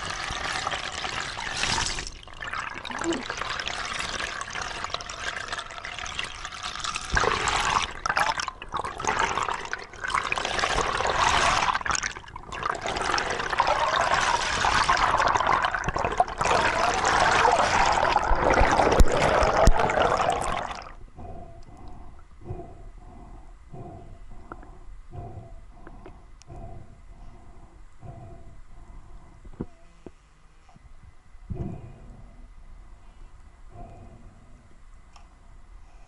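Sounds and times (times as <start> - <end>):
underwater rushing and bubbling water: 0.0 - 21.0.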